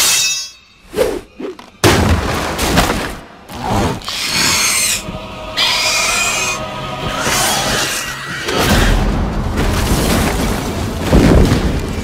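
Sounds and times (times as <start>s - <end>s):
heavy crash and impacts: 8.9s - 12.0s.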